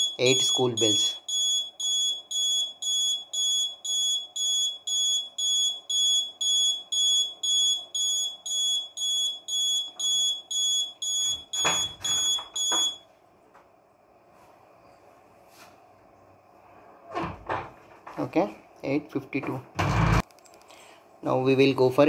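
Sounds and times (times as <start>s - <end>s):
alarm buzzer beeping: 0.0s - 13.0s.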